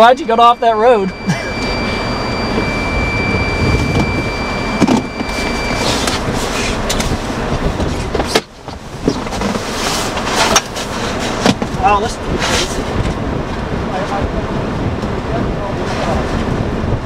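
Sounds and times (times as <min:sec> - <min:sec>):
steady high-pitched tone: 0:00.0 - 0:07.9
storm wind and rain rushing: 0:00.9 - 0:17.0
windshield wiper sweeping: 0:01.3 - 0:13.3.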